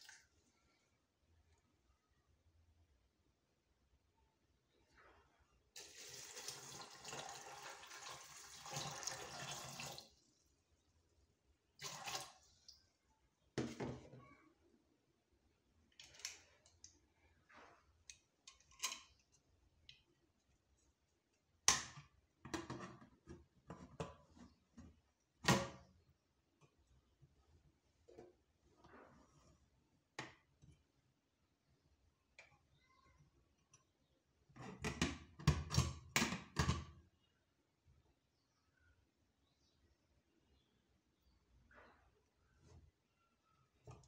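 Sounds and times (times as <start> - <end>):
water pouring into a pot: 5.8 - 10.2, 11.8 - 12.8.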